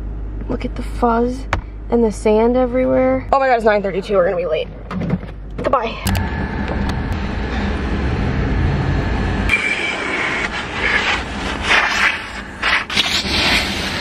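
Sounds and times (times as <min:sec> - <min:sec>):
car interior road rumble: 0:00.4 - 0:14.0
vacuum hose sucking: 0:09.5 - 0:14.0.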